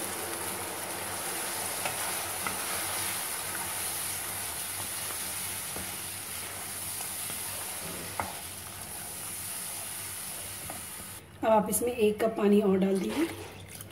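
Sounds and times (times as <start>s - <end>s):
batter sizzling in oil: 0.0s - 11.2s
wooden spatula scraping pan: 1.7s - 11.0s.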